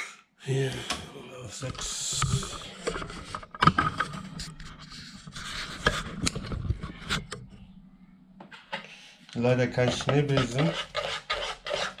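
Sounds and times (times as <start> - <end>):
low hum: 1.8 - 8.7.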